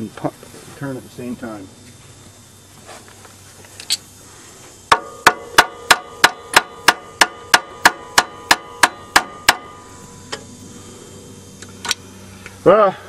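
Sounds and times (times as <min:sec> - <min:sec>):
hammer striking metal: 0:04.9 - 0:09.9.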